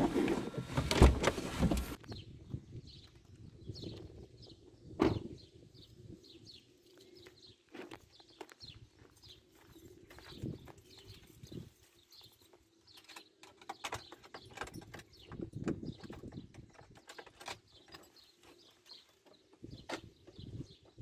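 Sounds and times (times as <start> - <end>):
birds chirping: 0.0 - 21.0
keys rattling in a door lock: 13.0 - 18.3.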